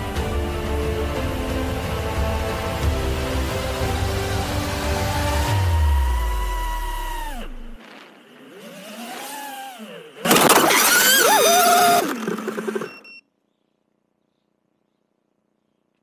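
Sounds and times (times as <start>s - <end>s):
drone motors whining: 0.9s - 13.0s.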